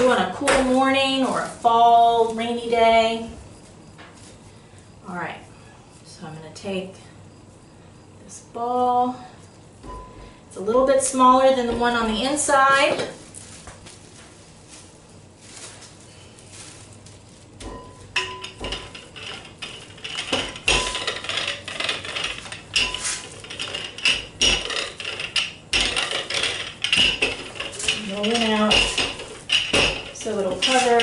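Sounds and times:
rolling pin rolling dough: 17.5 - 31.0
rolling pin clicking and knocking: 17.6 - 31.0.

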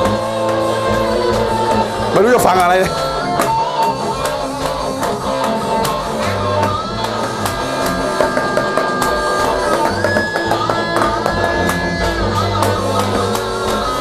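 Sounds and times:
electric guitar notes: 0.0 - 14.0
electronic drum hits: 7.6 - 12.1.

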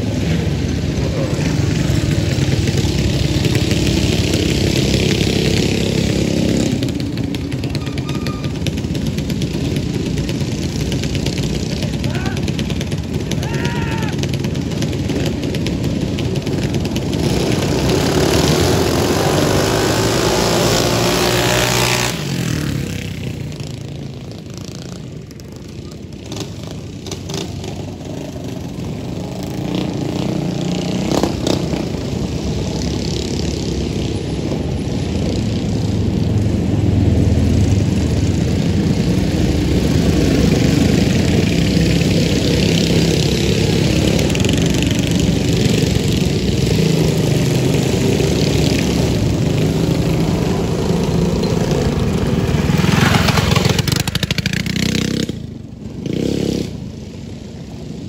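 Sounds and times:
mini bike engines revving: 0.0 - 58.0.

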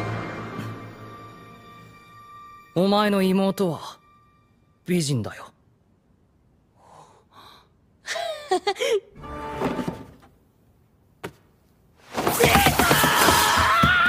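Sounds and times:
frightened yell: 12.3 - 14.0.

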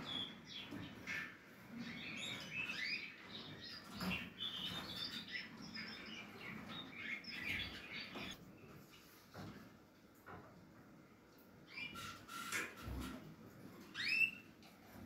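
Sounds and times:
nestlings chirping: 1.8 - 8.4.

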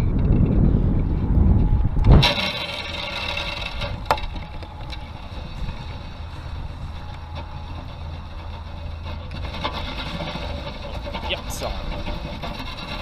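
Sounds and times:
fishing line whirring off reel: 1.7 - 9.5.

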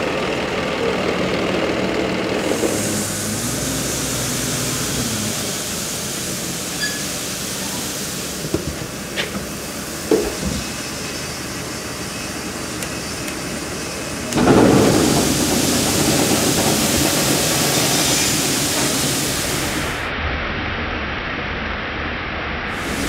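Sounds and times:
grain pouring rushing hiss: 2.4 - 20.1, 22.7 - 23.0.

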